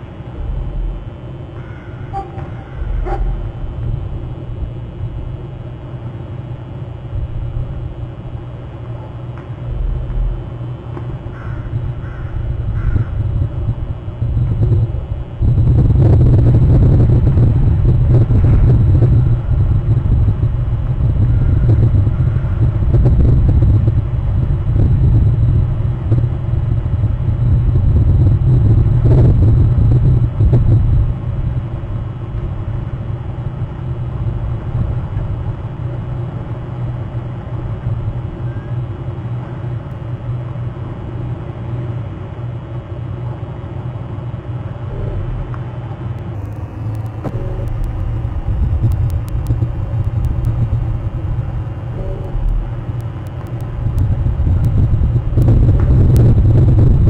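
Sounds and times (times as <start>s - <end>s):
low rumble: 0.0s - 36.0s, 44.9s - 57.0s
faint clicks: 46.2s - 56.4s.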